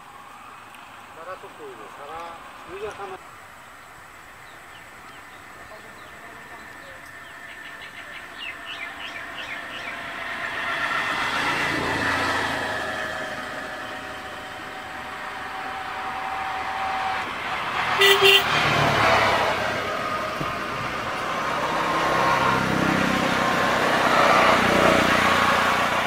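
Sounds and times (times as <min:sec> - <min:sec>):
bird chirps: 0:03.6 - 0:10.1
vehicle passing: 0:04.4 - 0:26.0
short double horn toot: 0:18.0 - 0:18.6.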